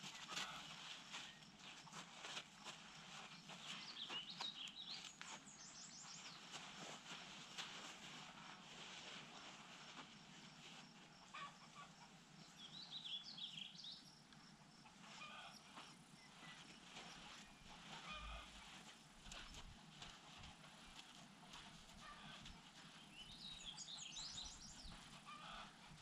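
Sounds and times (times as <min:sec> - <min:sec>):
bird chirping: 0:03.6 - 0:06.4, 0:12.6 - 0:14.2, 0:23.0 - 0:25.6.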